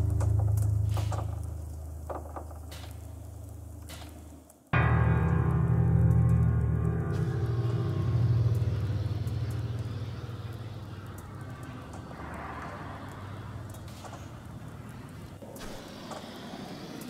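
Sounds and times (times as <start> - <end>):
deep low rumble: 4.8 - 15.4.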